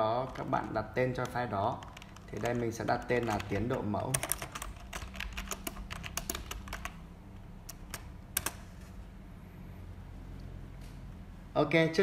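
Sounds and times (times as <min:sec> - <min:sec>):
typing on keyboard: 0:00.0 - 0:08.7.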